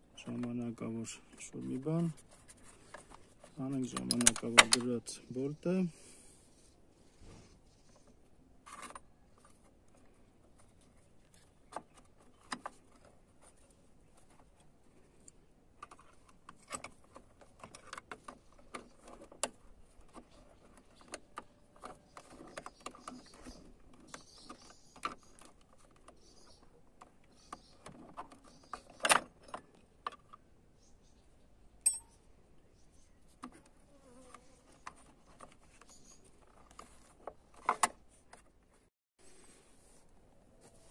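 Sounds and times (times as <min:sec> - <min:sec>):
small metal clicks and clinks: 0:31.8 - 0:32.2.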